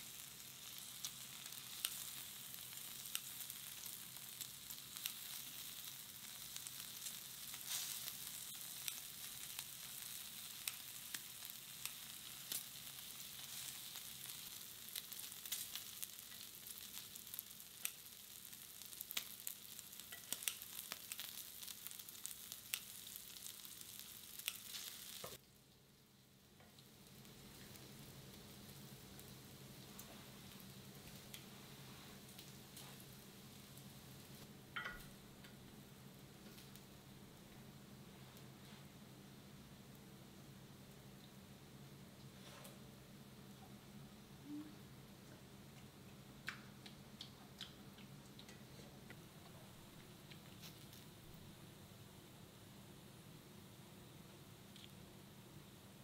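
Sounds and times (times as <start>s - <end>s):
meat sizzling on grill pan: 0.0s - 25.4s
crackles and pops of spitting fat: 0.0s - 25.9s, 45.7s - 51.3s, 54.6s - 55.0s.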